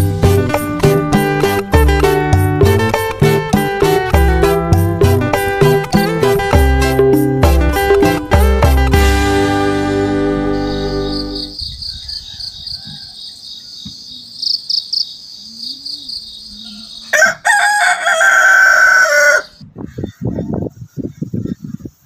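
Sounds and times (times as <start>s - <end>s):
insect chirping: 10.5s - 17.2s
rooster crowing: 12.0s - 13.9s, 15.6s - 19.6s.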